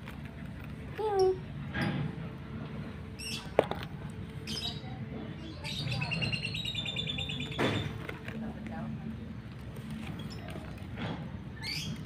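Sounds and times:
small birds chirping: 3.2s - 3.6s, 4.3s - 7.9s, 9.8s - 12.0s.

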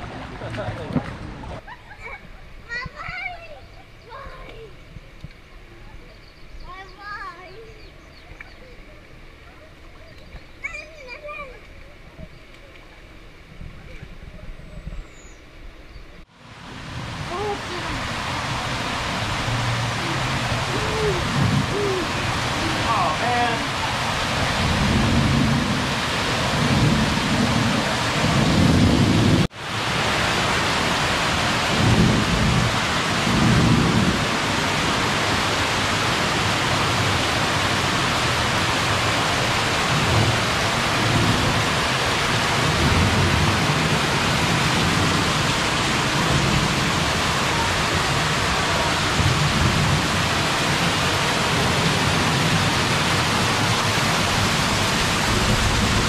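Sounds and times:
waterfall rushing: 16.3s - 56.0s.

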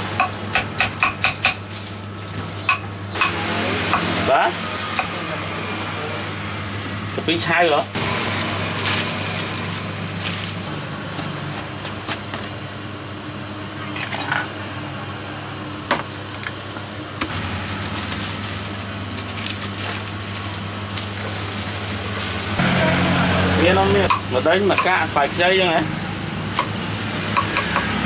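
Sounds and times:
low mechanical hum: 0.0s - 28.0s.

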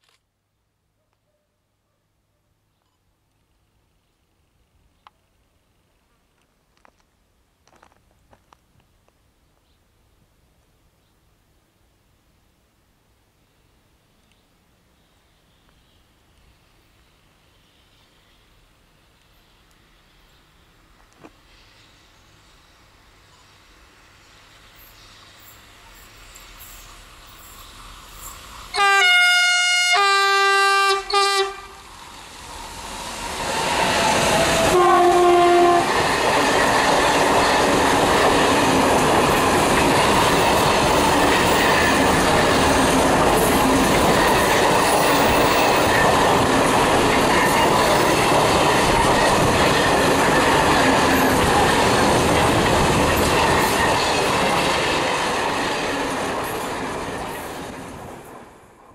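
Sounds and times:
locomotive horn blasts: 28.7s - 31.8s, 34.7s - 36.0s
train wheels clacking over rail joints: 33.5s - 57.6s.

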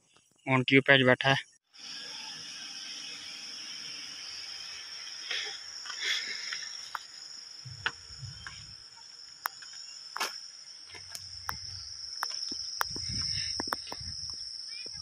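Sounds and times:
high-pitched insect drone: 1.6s - 15.0s
sharp clicks: 10.9s - 14.4s.

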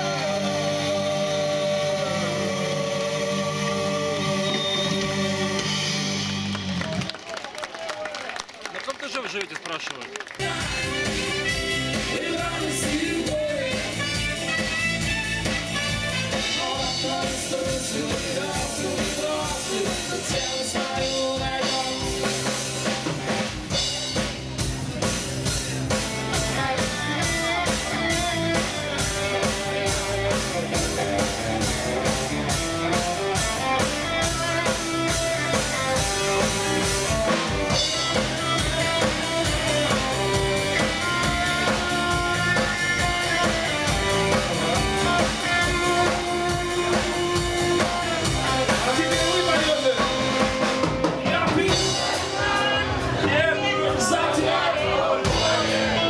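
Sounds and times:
person singing: 0.0s - 6.0s, 10.4s - 14.3s, 16.2s - 22.6s
electric guitars: 0.0s - 7.1s, 10.3s - 56.0s
drum kit beat: 10.4s - 56.0s.

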